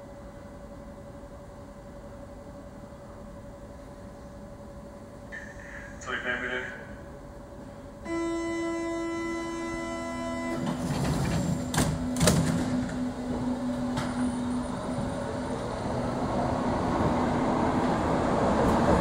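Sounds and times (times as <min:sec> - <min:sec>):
train running rumble: 0:00.0 - 0:19.0
traction motors humming: 0:07.6 - 0:18.0
door-closing warning tone: 0:08.1 - 0:13.1
train doors thumping shut: 0:10.1 - 0:15.2.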